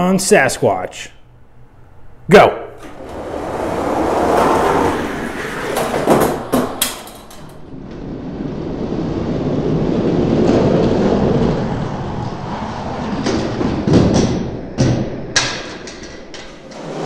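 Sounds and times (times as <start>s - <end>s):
toy trucks rolling on plastic track: 3.0s - 7.6s.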